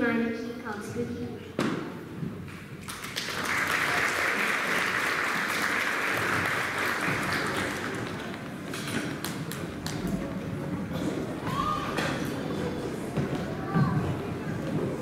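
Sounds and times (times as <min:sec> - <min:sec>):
audience applauding: 0:02.8 - 0:10.3.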